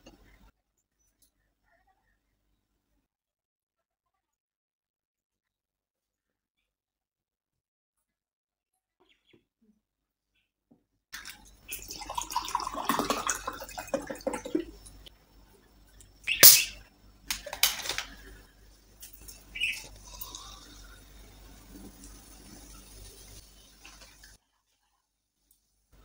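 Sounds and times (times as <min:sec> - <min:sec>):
water pouring into a glass: 0:11.2 - 0:15.1, 0:19.2 - 0:24.4
faint fizzing hiss: 0:11.2 - 0:24.8
bottle opening hiss: 0:16.3 - 0:16.8.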